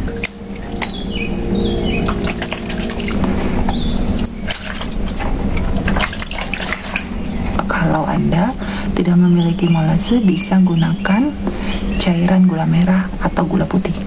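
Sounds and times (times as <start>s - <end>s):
liquid sloshing and splashing: 0.0s - 8.0s.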